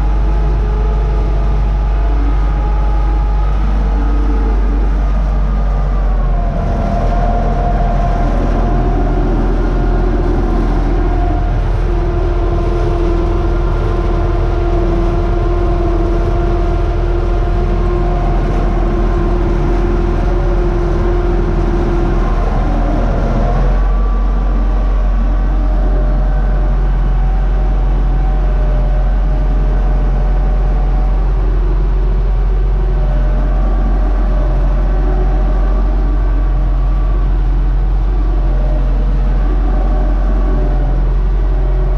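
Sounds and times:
tractor diesel engine under load: 0:00.0 - 0:41.9.

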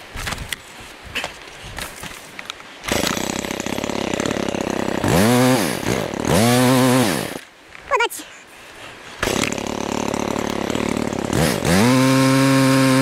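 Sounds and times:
chainsaw engine idling and revving: 0:02.9 - 0:07.4, 0:09.2 - 0:13.0.

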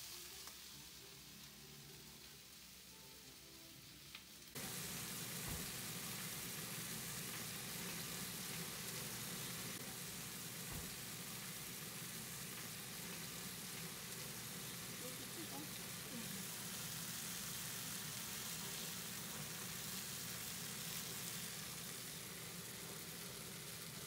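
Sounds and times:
onions sizzling in a frying pan: 0:00.0 - 0:24.0.

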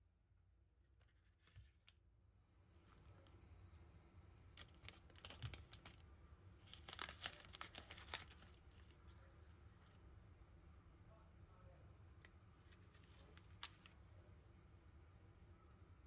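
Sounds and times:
packet crinkling and tearing: 0:04.5 - 0:09.0, 0:12.6 - 0:14.0.

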